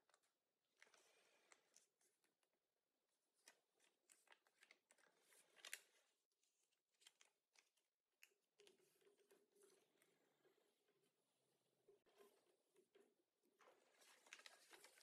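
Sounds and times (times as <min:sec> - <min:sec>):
paper rustling and crinkling: 0:03.3 - 0:07.9, 0:13.6 - 0:15.0.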